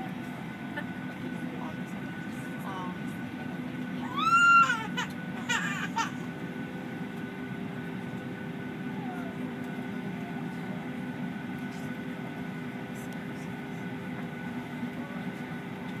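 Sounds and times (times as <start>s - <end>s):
airliner cabin hum: 0.0s - 16.0s
baby crying: 4.0s - 6.3s.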